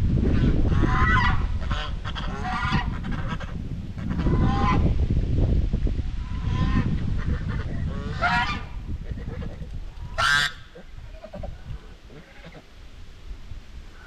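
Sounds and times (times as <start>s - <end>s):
geese honking: 6.2s - 8.7s, 10.1s - 12.6s.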